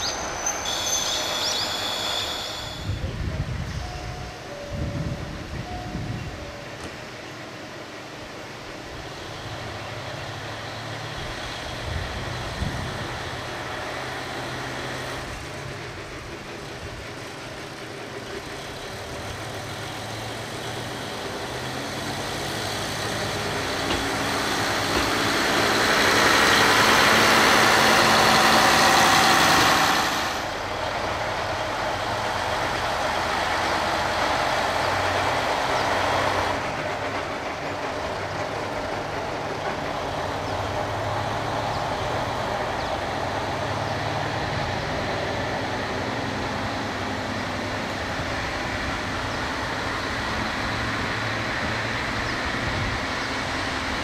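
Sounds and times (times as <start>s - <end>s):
diesel railcar engine revving: 0.0s - 54.0s.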